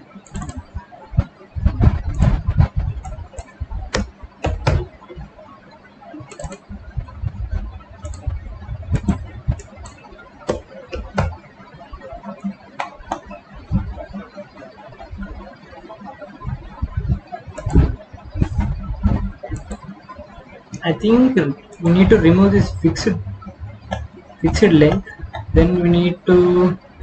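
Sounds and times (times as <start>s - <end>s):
mouse and keyboard clicking: 0.2s - 0.6s, 6.3s - 6.6s, 8.0s - 8.3s
dull low thumps: 1.6s - 4.8s, 6.7s - 9.9s, 13.7s - 14.0s, 16.6s - 19.7s, 21.8s - 26.7s.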